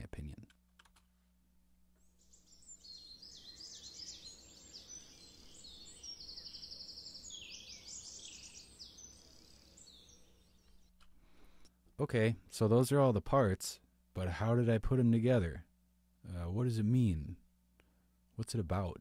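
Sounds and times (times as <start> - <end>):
birds chirping and trilling: 2.0 - 11.6.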